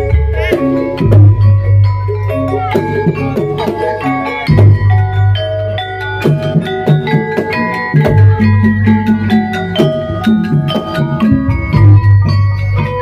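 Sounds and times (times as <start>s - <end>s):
metallophones ringing melody: 0.0s - 13.0s
sharp percussion strikes: 0.0s - 13.0s.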